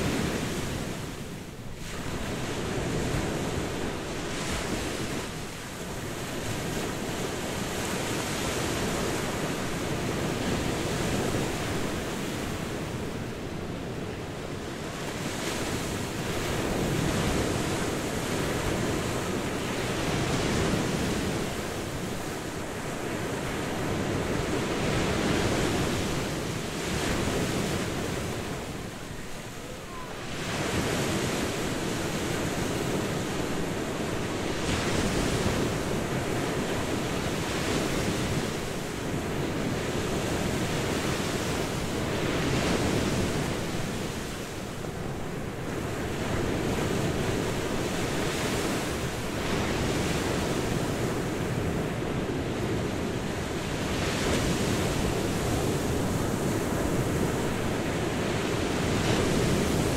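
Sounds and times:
sea waves breaking on beach: 0.0s - 59.9s.

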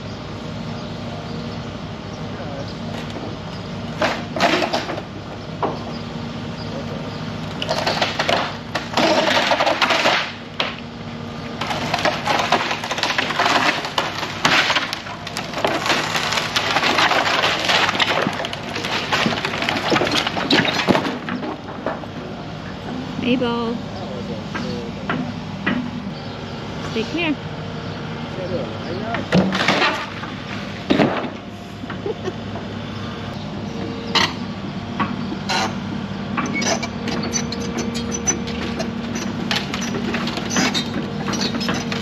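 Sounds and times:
excavator engine running: 0.0s - 42.0s
wood cracking and splintering: 4.0s - 5.8s, 7.5s - 10.9s, 11.5s - 22.2s, 29.2s - 31.4s, 36.4s - 42.0s.

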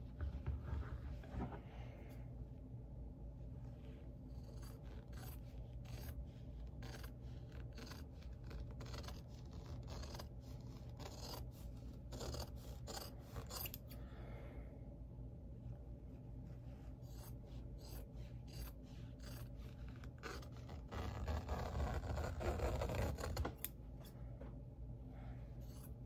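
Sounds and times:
scissors snipping fabric: 4.3s - 11.5s, 12.1s - 13.9s, 17.0s - 23.8s.

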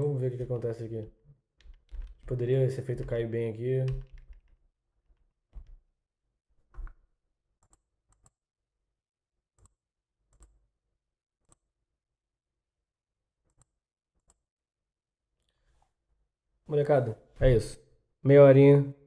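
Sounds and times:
computer mouse clicking: 7.6s - 8.4s, 9.6s - 10.6s.

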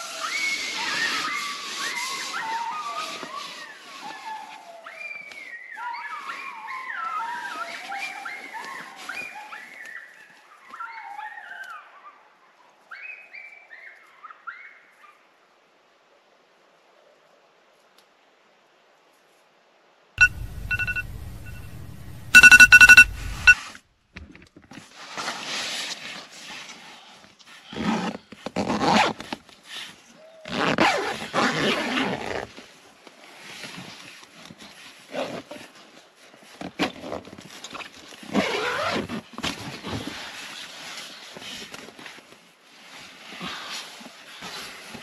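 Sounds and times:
tent zipper opening: 27.7s - 29.4s, 30.5s - 32.5s, 38.3s - 39.2s
tent fabric rustling: 27.8s - 45.0s.

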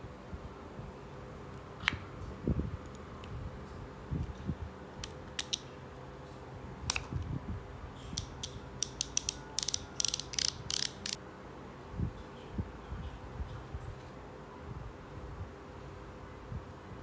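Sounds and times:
bicycle hub ratchet clicking: 8.2s - 11.2s.

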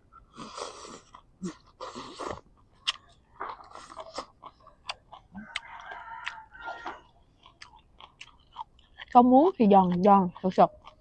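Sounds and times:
chewing with wet clicks: 0.2s - 11.0s
person slurping food: 0.3s - 2.4s.

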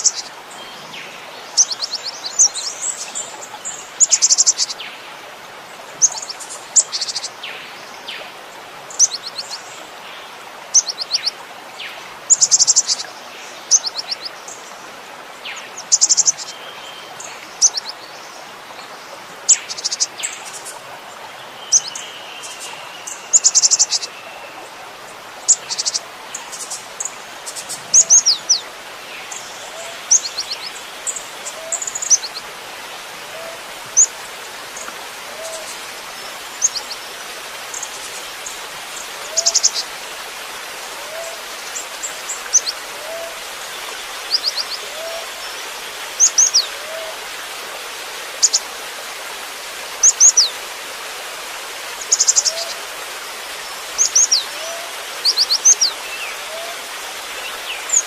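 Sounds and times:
steady background hiss: 0.0s - 58.0s
bird singing and calling: 25.5s - 32.4s, 39.2s - 39.9s, 41.1s - 47.2s, 50.0s - 50.6s, 52.0s - 52.8s, 53.9s - 56.8s.

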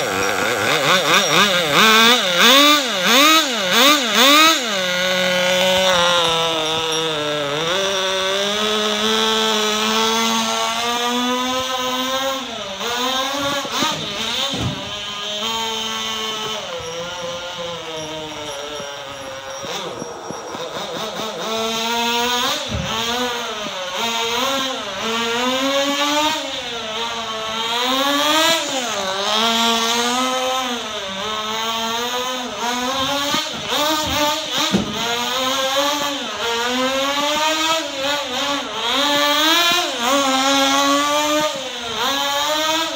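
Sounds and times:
small nitro engine revving: 0.0s - 42.9s
sharp knocks: 13.4s - 15.0s, 33.6s - 35.2s.

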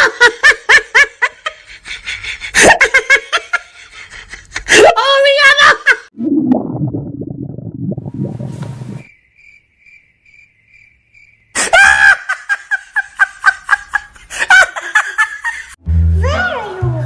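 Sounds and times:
stomach growl rumble: 6.2s - 9.1s
faint cricket chirps: 8.9s - 13.8s.

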